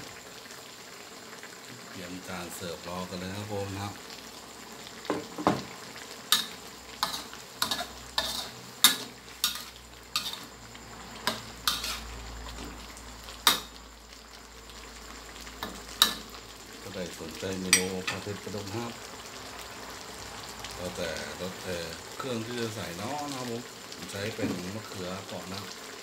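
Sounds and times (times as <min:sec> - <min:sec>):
frying sizzle: 0:00.0 - 0:26.0
metal spatula scraping wok: 0:06.3 - 0:10.6, 0:11.2 - 0:12.8.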